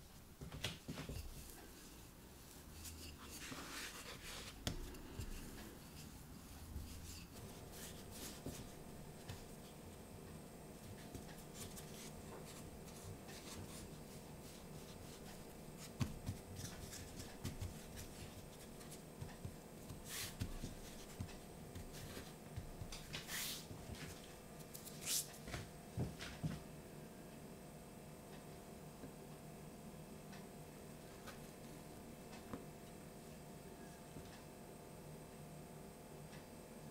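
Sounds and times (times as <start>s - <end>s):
hands patting dough: 2.7s - 10.1s, 10.8s - 24.3s.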